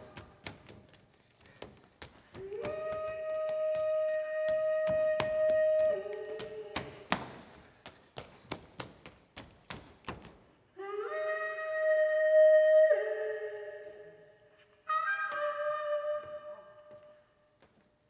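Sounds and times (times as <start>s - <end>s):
wind instrument long notes: 2.4s - 7.0s, 10.8s - 17.2s.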